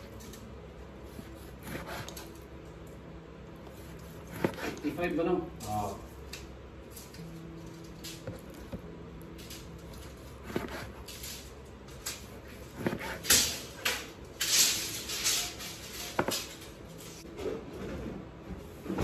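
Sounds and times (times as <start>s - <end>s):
tape measure scraping rustle: 14.4s - 17.2s.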